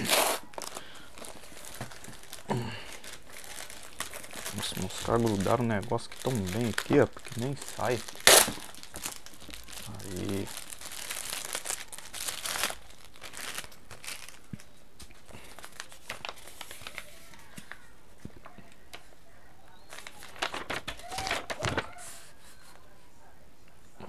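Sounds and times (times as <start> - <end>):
paper crinkling and tearing: 0.0 - 17.9, 19.8 - 22.3.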